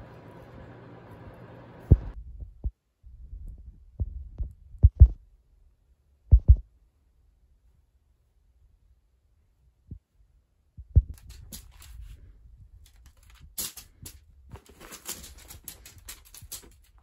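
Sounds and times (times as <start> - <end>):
short dull low thumps: 1.9 - 5.2, 6.3 - 6.7.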